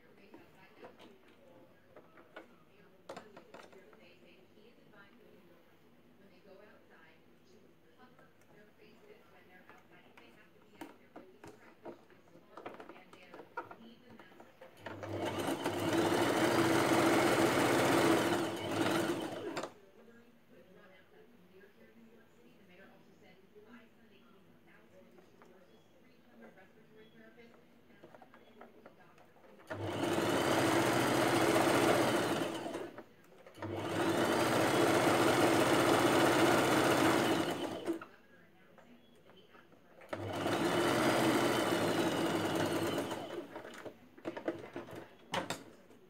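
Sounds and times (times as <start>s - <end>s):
sewing machine stitching: 12.6s - 19.8s, 28.0s - 38.1s, 40.0s - 45.9s.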